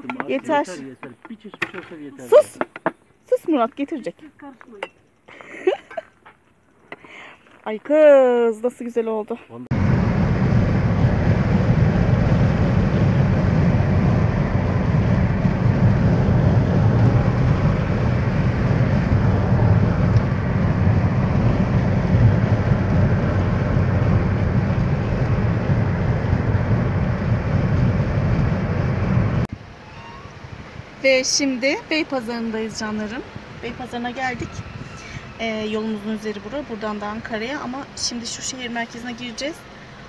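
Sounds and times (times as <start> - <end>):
road and engine noise inside car: 9.6 - 40.0.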